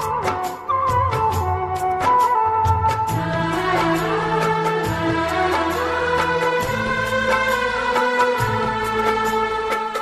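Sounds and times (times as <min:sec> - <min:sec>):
film-style instrumental music: 0:00.0 - 0:10.0.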